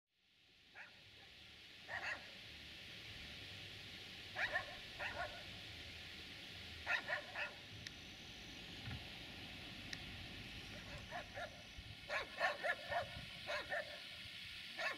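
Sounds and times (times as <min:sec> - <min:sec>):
faint background hiss: 0:00.2 - 0:14.9
dog barking: 0:00.8 - 0:01.3, 0:01.9 - 0:02.3, 0:04.4 - 0:05.4, 0:06.8 - 0:07.6, 0:10.8 - 0:14.1.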